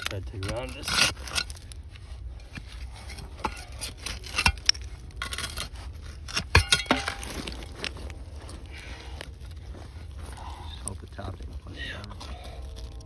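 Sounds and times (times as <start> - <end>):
digging tool scraping and knocking: 0.0 - 10.2.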